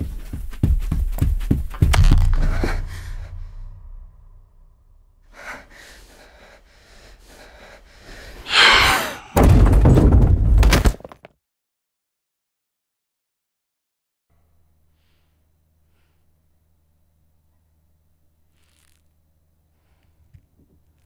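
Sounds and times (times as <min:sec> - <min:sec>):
harsh banging noise: 0:01.8 - 0:05.2, 0:08.5 - 0:10.5
sharp gasp: 0:08.0 - 0:09.4
loud thuds: 0:08.5 - 0:10.8.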